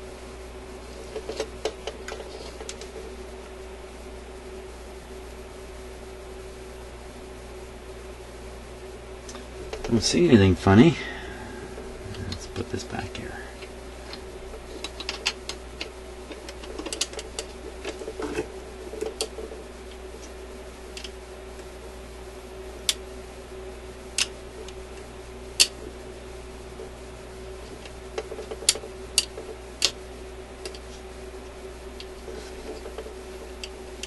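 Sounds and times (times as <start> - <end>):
steady hum: 0.0 - 34.0
record changer mechanism clicking: 12.2 - 21.8, 27.7 - 30.0, 32.0 - 34.0.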